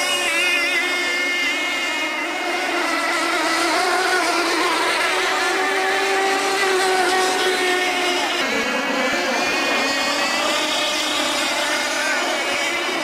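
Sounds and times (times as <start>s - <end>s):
model race boat engines whining: 0.0s - 13.0s.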